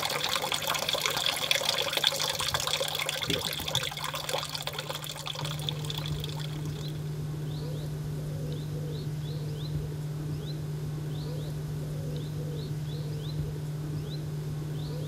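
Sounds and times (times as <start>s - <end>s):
water trickling: 0.0s - 7.1s
low steady hum: 0.0s - 15.0s.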